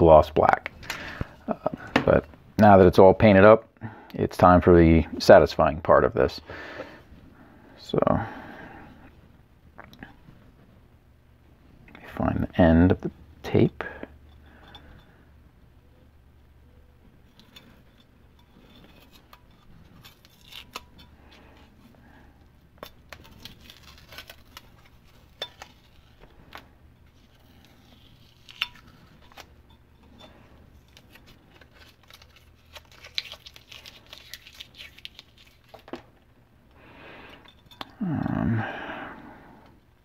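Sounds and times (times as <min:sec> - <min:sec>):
masking tape peeling: 0:19.9 - 0:21.0, 0:23.1 - 0:26.2, 0:31.0 - 0:35.8.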